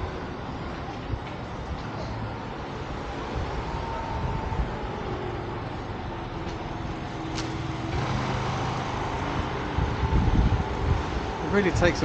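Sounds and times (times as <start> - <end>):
street noise: 0.0 - 12.0
vehicle engine running: 3.4 - 12.0.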